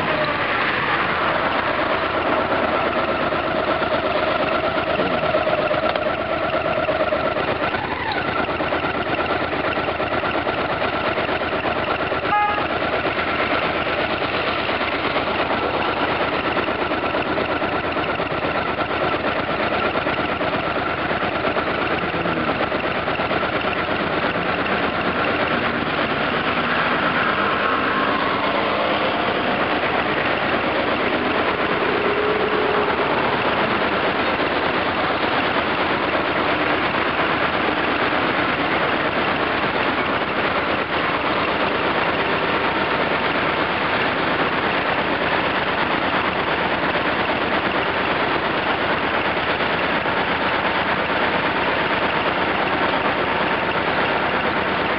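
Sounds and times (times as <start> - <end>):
cars passing: 0.0 - 6.0, 24.2 - 46.0
motorcycle engine idling: 1.0 - 54.9.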